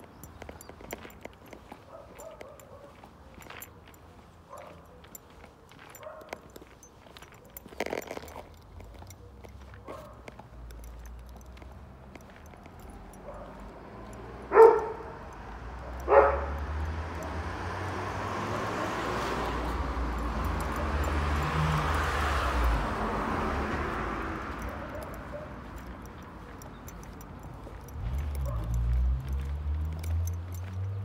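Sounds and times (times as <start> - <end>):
vehicle passing: 0.8 - 31.0.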